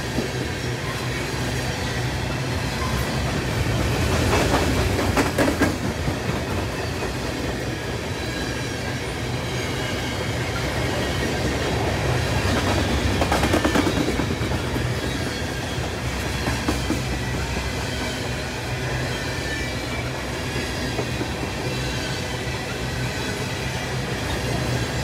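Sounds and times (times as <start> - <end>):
freight train cars rumbling: 0.0 - 25.0
train wheel clicks: 4.0 - 7.2, 12.5 - 15.2.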